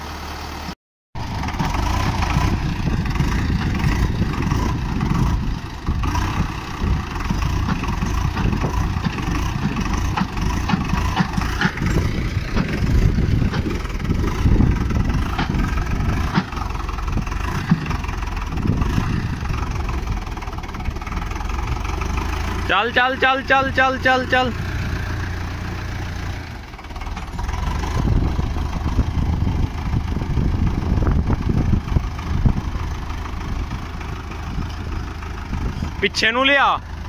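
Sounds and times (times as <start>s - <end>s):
diesel tractor engine running: 0.0s - 37.0s
wheels churning in mud: 0.0s - 37.0s.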